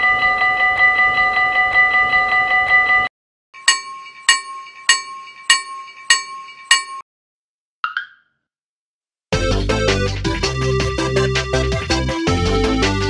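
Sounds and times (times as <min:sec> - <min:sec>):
railroad crossing bell ringing: 0:00.0 - 0:07.0.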